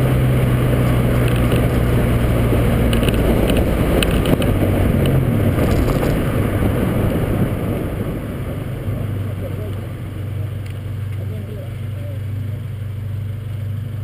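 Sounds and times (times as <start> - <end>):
car engine running: 0.0 - 14.0
wind buffeting microphone: 0.5 - 10.1.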